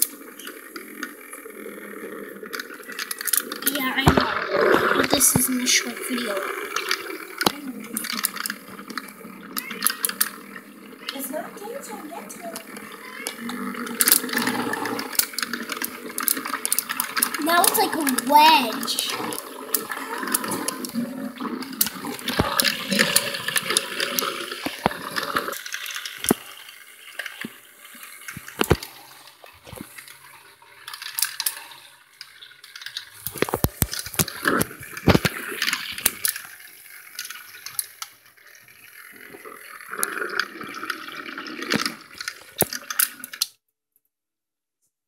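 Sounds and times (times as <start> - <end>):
water swirling in a glass: 0.0 - 43.4
sharp clicks and knocks: 32.6 - 36.4.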